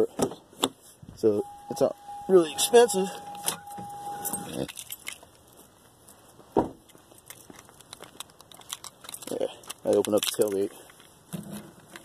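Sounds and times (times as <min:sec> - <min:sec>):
steady tone: 0:01.2 - 0:04.7
keys rattling: 0:01.5 - 0:05.4, 0:07.1 - 0:11.2.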